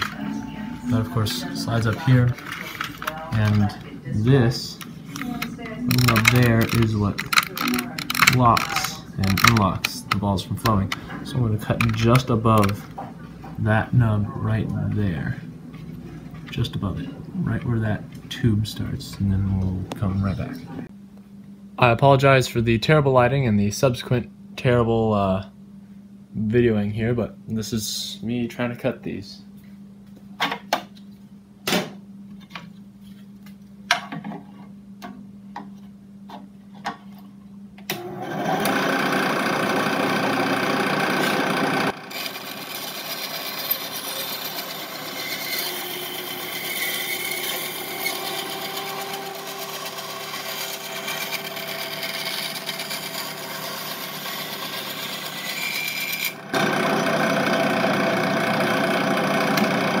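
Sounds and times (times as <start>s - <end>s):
power saw cutting plastic: 5.1s - 10.0s, 37.9s - 60.0s.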